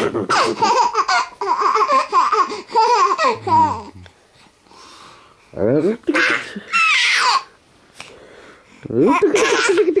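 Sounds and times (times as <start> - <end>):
baby giggling: 0.0 - 4.0, 6.1 - 7.5, 9.0 - 10.0.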